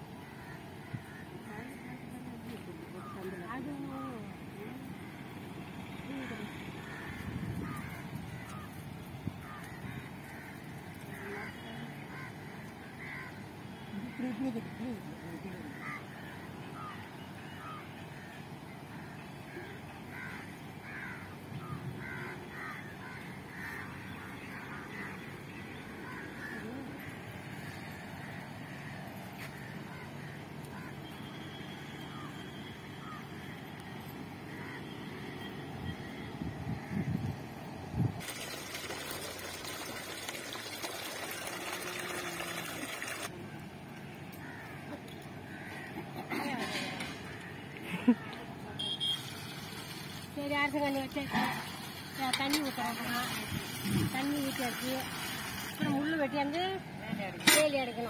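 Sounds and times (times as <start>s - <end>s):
birds calling: 0.0s - 37.4s, 40.8s - 51.0s
water pouring into metal pot: 38.2s - 43.3s, 51.6s - 55.8s.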